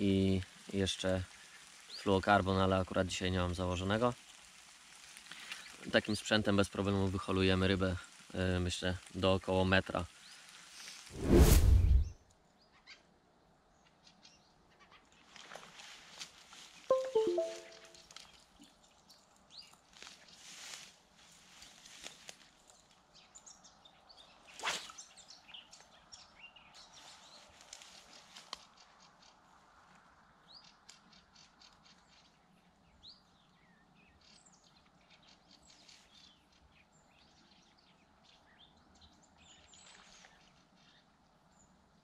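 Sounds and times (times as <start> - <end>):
small birds chirping: 5.2 - 11.1, 30.4 - 42.0.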